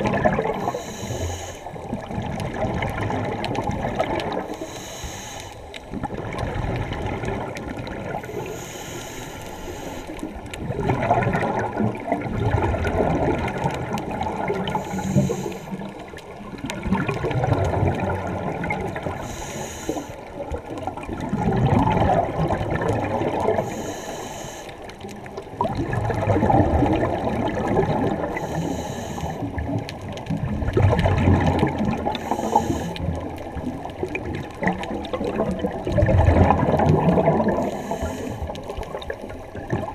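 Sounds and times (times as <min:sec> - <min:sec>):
bubbling exhale underwater: 0:00.0 - 0:04.7, 0:05.9 - 0:08.8, 0:09.8 - 0:24.2, 0:25.2 - 0:39.9
regulator hissing inhale: 0:00.6 - 0:01.9, 0:04.4 - 0:05.8, 0:08.2 - 0:10.4, 0:14.6 - 0:16.0, 0:19.2 - 0:20.4, 0:23.6 - 0:25.0, 0:28.2 - 0:29.6, 0:32.2 - 0:33.2, 0:37.6 - 0:38.7.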